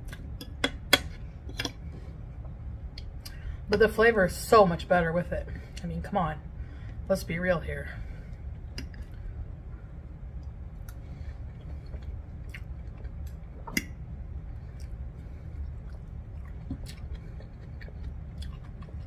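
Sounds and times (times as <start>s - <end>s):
chewing soft food: 10.3s - 19.0s.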